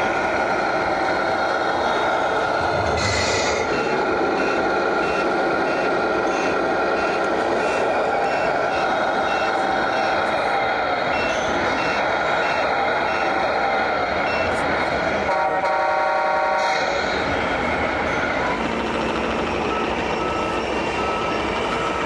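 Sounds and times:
reversing beeper: 2.7 - 10.4, 11.1 - 13.5, 14.2 - 14.6, 17.9 - 22.0.

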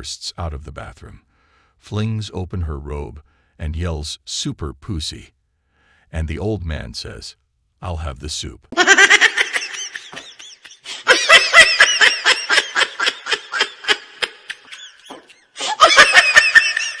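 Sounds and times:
high-pitched rapid laughter: 8.8 - 17.0.

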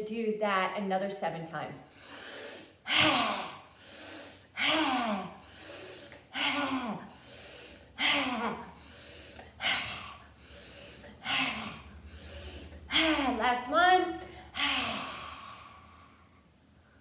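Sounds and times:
woman forcefully exhaling: 1.9 - 13.4, 14.2 - 16.1.

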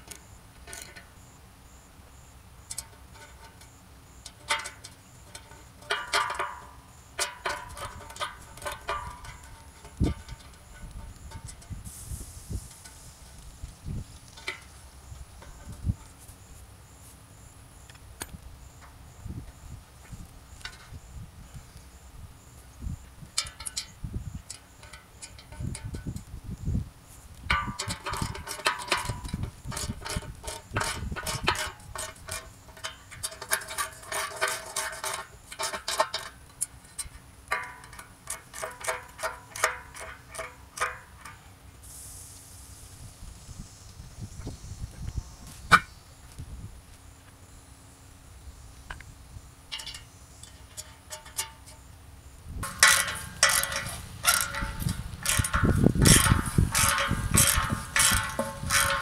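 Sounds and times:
ratchet wrench clicking: 52.6 - 59.0.

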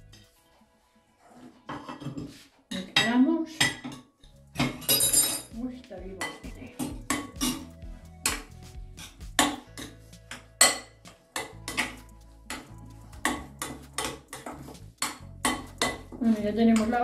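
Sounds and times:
utensil clinking in glass bowl: 4.6 - 5.6.

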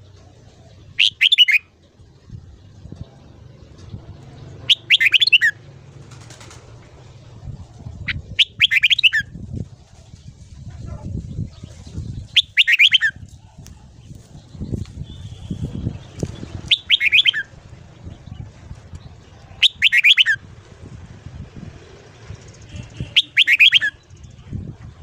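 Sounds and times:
bird singing quick notes: 0.9 - 1.7, 4.6 - 5.6, 8.1 - 9.3, 11.3 - 13.2, 14.5 - 17.5, 22.4 - 24.2
low background rumble: 5.5 - 12.4.

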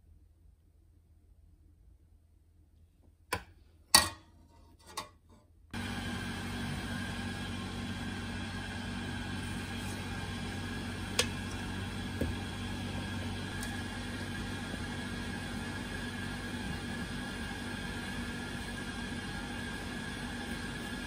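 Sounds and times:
steady mechanical hum: 5.8 - 21.0.

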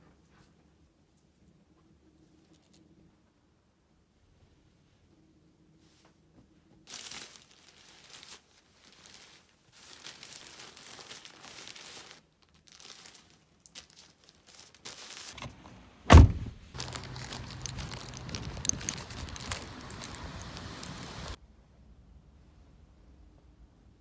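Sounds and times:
plastic bag rustling: 6.9 - 15.6, 16.6 - 21.4
low outdoor hum: 15.4 - 24.0
loud thump: 16.1 - 16.7.

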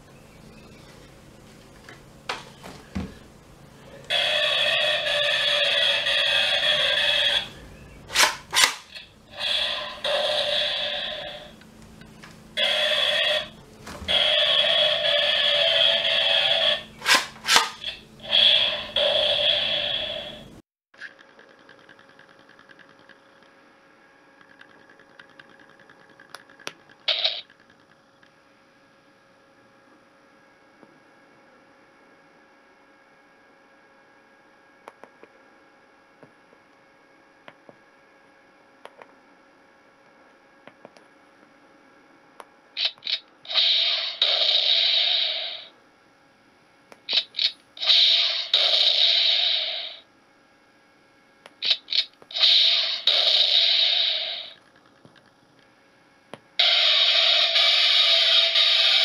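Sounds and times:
toy gun sound effects: 8.1 - 10.7, 17.0 - 17.9, 47.1 - 50.0, 51.6 - 54.6, 56.6 - 59.0.

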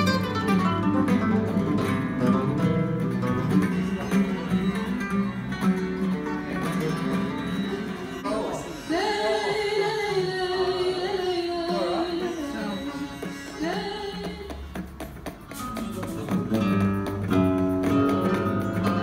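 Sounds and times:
instrumental accompaniment: 0.0 - 19.0
plucked string notes: 0.0 - 19.0
woman singing: 8.8 - 14.8.

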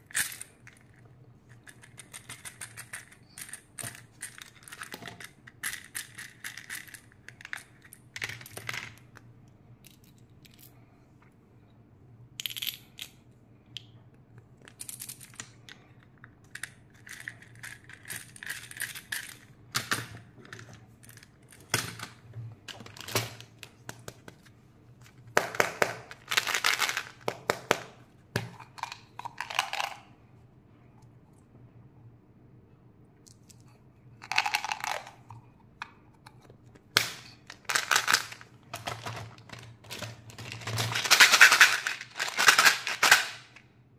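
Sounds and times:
faint low hum: 0.0 - 43.9
candies rattling in plastic toys: 1.6 - 9.0, 16.5 - 19.5, 25.6 - 27.6, 34.2 - 35.2, 37.0 - 43.6.

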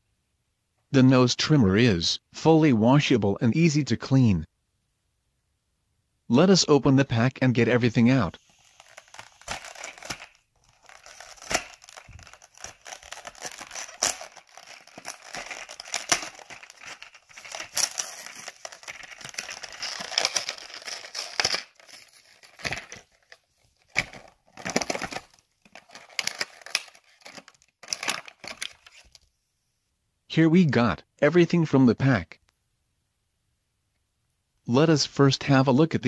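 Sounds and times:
packaging crinkling and tearing: 8.5 - 29.2.

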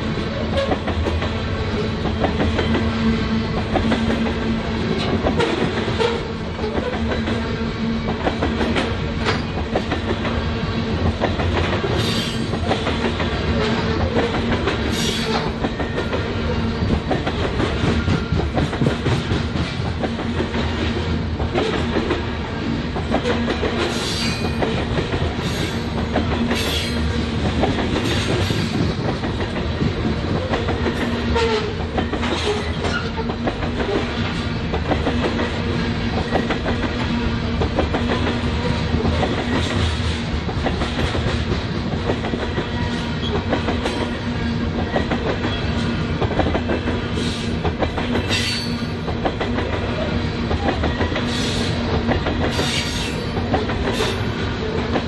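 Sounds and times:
clickety-clack over rail joints: 0.0 - 55.0
train wheels rumbling on rails: 0.0 - 55.0
wheels squealing on rail: 0.3 - 0.9, 4.9 - 9.9, 11.9 - 12.8, 13.6 - 18.9, 23.2 - 27.2, 27.9 - 28.9, 30.3 - 34.2, 42.6 - 46.1, 47.0 - 49.1, 50.0 - 55.0.

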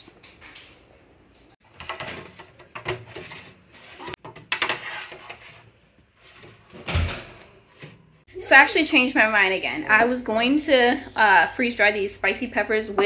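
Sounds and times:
metal trays scraping and clattering: 1.7 - 8.2.

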